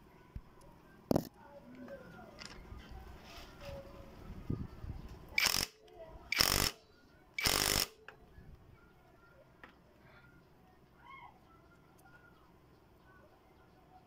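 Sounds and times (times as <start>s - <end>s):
impact wrench bursts: 5.4s - 6.8s, 7.4s - 8.0s.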